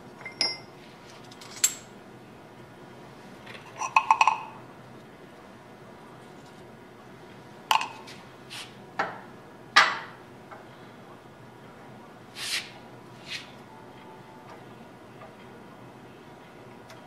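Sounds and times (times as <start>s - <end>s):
short scraping hisses: 12.4s - 13.5s.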